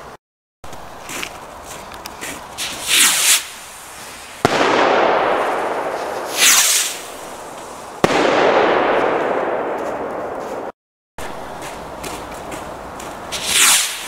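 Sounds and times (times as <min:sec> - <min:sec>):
high rushing whoosh of rocket: 0:02.6 - 0:09.7, 0:13.3 - 0:14.0
firework rocket bangs: 0:02.6 - 0:10.7, 0:13.3 - 0:14.0.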